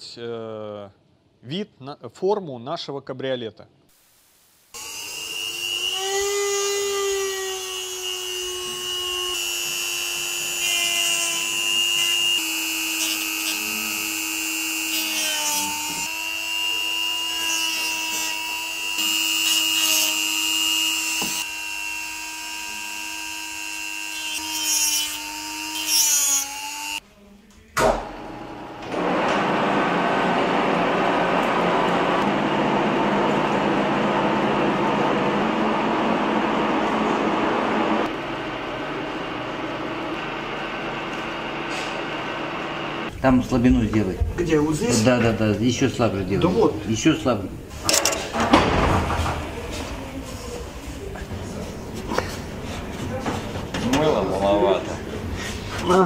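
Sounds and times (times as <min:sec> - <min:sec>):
electric power tool running: 0:04.7 - 0:27.0.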